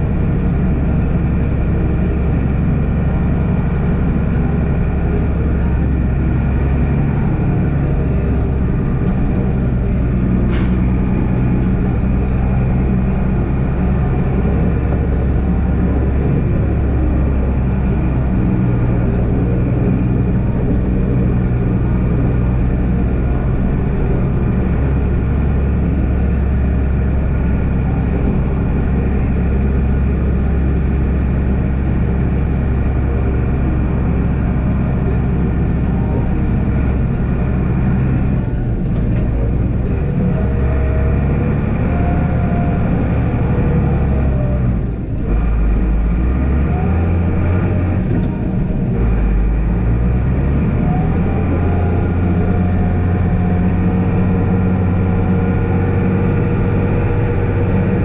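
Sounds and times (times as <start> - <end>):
diesel engine under load: 0.0 - 58.0
snowplow blade pushing snow: 0.0 - 58.0.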